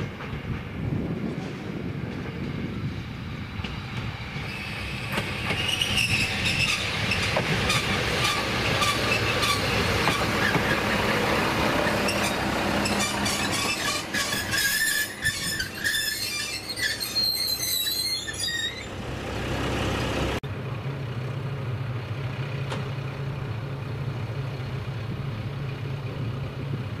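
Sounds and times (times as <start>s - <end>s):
diesel railcar idling hum: 0.0s - 27.0s
train wheels squealing: 4.4s - 10.9s, 11.8s - 19.0s.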